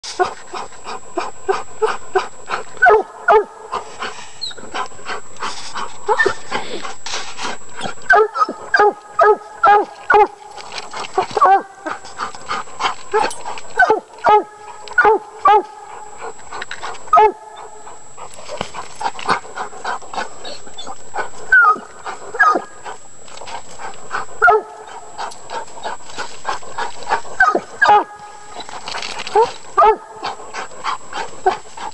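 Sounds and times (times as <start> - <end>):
dog barking: 2.8 - 3.5, 8.1 - 10.4, 13.8 - 15.7, 22.4 - 22.7, 24.4 - 24.8, 27.4 - 28.1, 29.4 - 30.1
dog panting: 11.0 - 13.8, 17.6 - 27.3, 30.2 - 31.9
chain rattling and scraping: 12.1 - 13.8.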